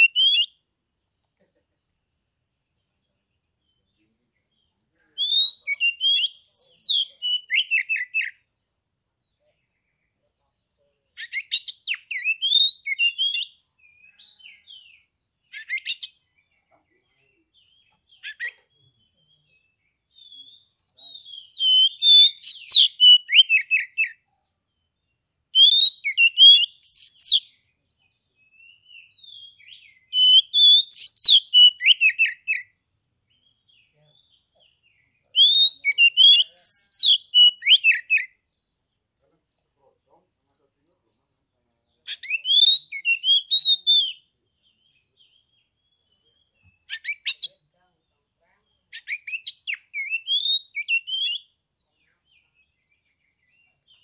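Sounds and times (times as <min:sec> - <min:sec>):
songbird whistling and trilling: 0:00.0 - 0:00.6, 0:05.2 - 0:08.4, 0:11.2 - 0:16.2, 0:19.6 - 0:24.2, 0:25.5 - 0:27.6, 0:28.4 - 0:33.6, 0:35.3 - 0:38.4, 0:42.1 - 0:44.3, 0:45.3 - 0:47.6, 0:48.9 - 0:51.6.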